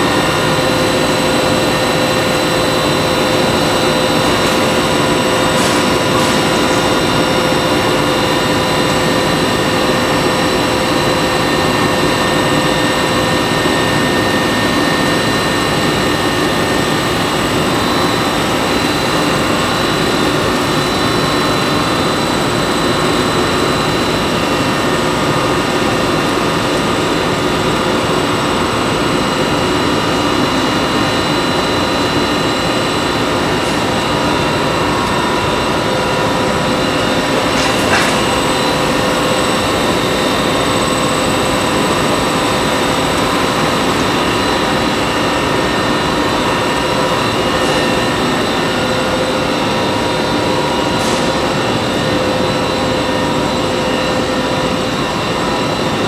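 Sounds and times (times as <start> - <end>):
machinery hum and whir: 0.0 - 56.0.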